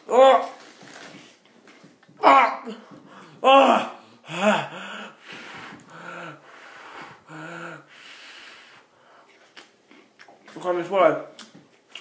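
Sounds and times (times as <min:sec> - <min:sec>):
man crying out in pain: 0:02.2 - 0:05.2.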